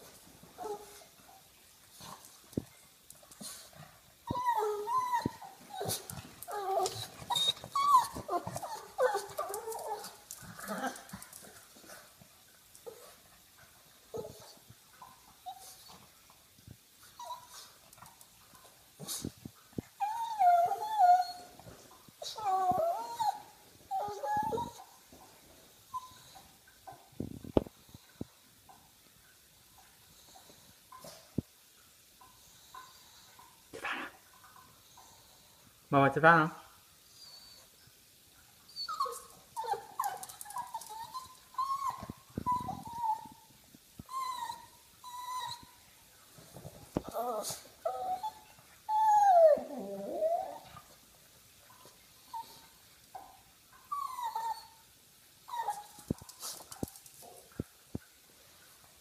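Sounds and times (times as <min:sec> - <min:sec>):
dog whining: 0:04.3 - 0:11.2, 0:20.0 - 0:21.6, 0:22.2 - 0:25.0, 0:33.8 - 0:34.2, 0:37.2 - 0:37.7, 0:38.7 - 0:43.5, 0:44.1 - 0:45.8, 0:47.0 - 0:50.8, 0:52.3 - 0:54.8, 0:55.5 - 0:56.7.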